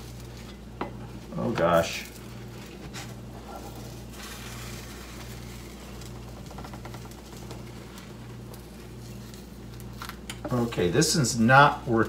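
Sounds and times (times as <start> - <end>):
spatula scraping frying pan: 2.2 - 6.2.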